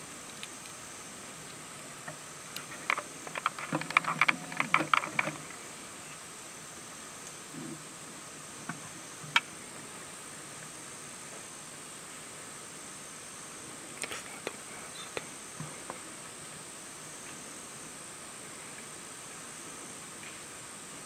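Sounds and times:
high-pitched insect chorus: 0.0s - 21.0s
clicks and rustling near microphone: 2.0s - 5.6s.

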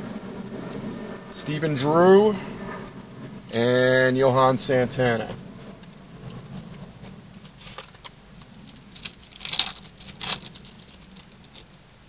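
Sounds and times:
card crinkles: 7.6s - 11.8s
cards rustling and shuffling: 7.6s - 11.8s.

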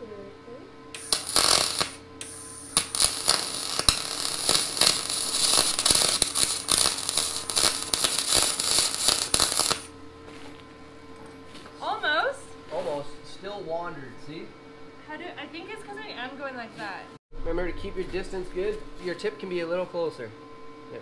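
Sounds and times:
welding arc crackling: 1.0s - 9.9s.

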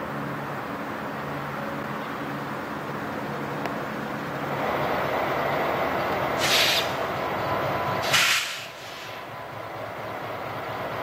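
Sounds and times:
diesel locomotive rumbling: 0.0s - 11.0s
short bursts of hissing: 6.4s - 7.0s, 8.0s - 9.2s.

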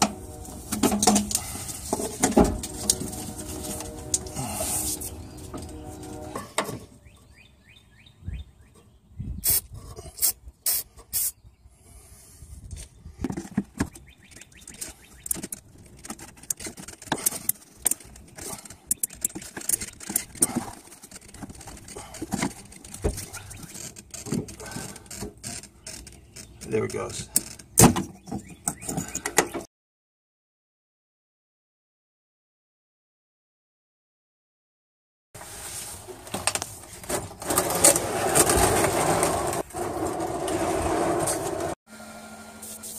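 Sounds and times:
plastic fittings clicking and rubbing: 13.3s - 27.8s.

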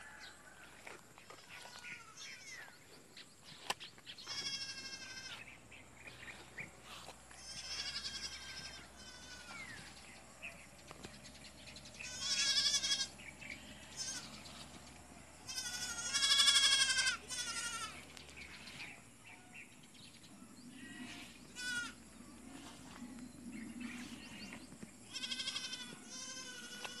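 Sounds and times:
animal bleating: 1.3s - 2.6s, 4.2s - 5.5s, 7.3s - 9.9s, 12.0s - 14.6s, 15.4s - 18.1s, 20.7s - 22.0s, 23.9s - 27.0s.

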